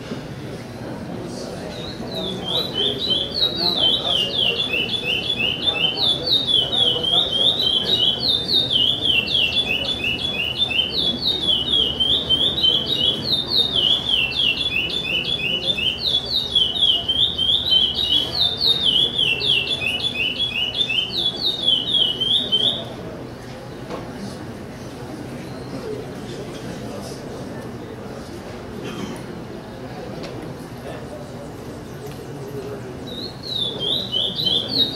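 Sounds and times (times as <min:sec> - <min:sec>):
bird singing whistled notes: 0:01.7 - 0:22.9, 0:33.1 - 0:34.9.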